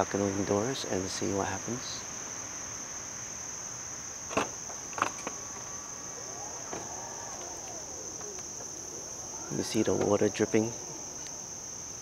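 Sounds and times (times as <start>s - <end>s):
insect chorus: 0.0s - 12.0s
faint motor whir: 3.0s - 12.0s.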